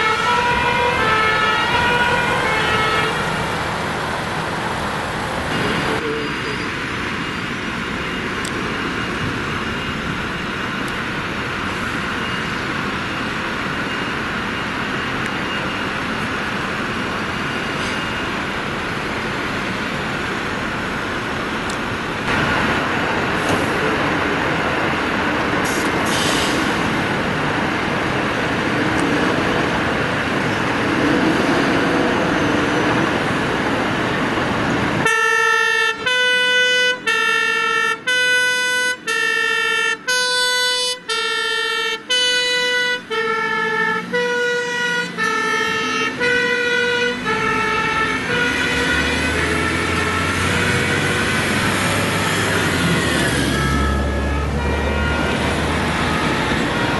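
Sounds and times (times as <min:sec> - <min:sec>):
two-tone siren: 0:00.0 - 0:03.4, 0:35.0 - 0:56.9
fire truck diesel engine: 0:00.0 - 0:56.9.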